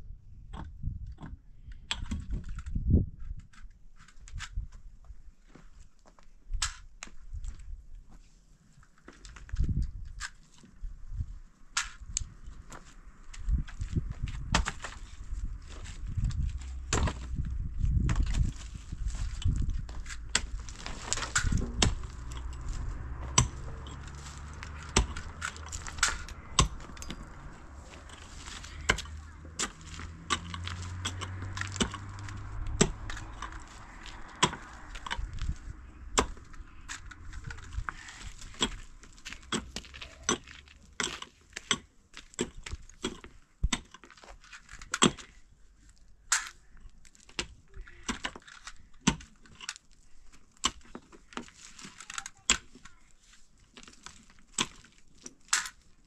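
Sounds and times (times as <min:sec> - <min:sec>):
hatchet chopping wood: 0:16.8 - 0:17.3, 0:20.0 - 0:27.3, 0:28.2 - 0:33.6, 0:34.3 - 0:35.2, 0:36.1 - 0:37.0.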